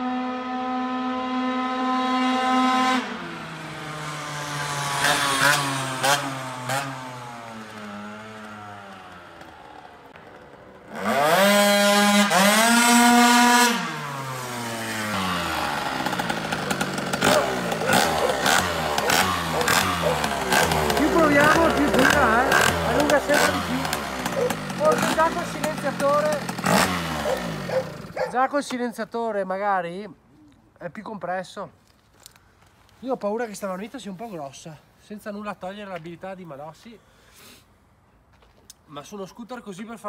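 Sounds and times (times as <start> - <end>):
scooter engine screaming at high revs: 0.0 - 28.4
scooter engine idling unevenly: 14.0 - 28.4.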